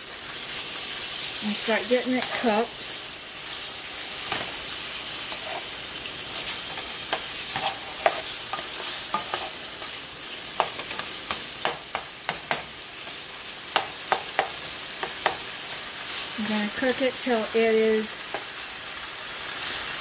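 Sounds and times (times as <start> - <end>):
chicken sizzling in oil: 0.0 - 20.0
spatula scraping pan: 1.5 - 13.2.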